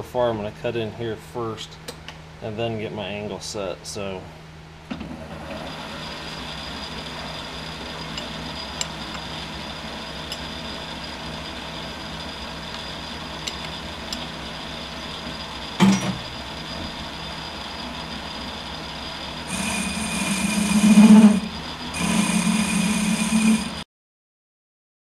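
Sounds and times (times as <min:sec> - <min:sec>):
lathe running: 0:05.2 - 0:23.8.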